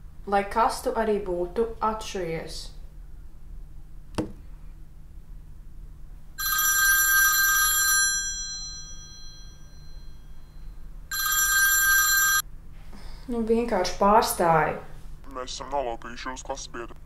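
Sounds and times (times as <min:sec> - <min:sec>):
smartphone ringtone: 0:06.4 - 0:10.5, 0:11.1 - 0:12.4.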